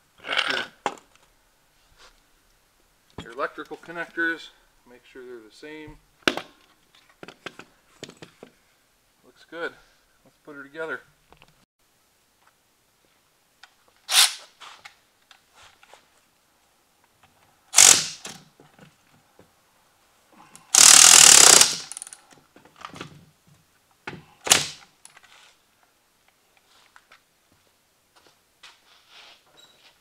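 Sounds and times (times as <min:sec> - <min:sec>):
cordless ratchet whirring: 0:17.8 - 0:18.3, 0:20.7 - 0:22.2.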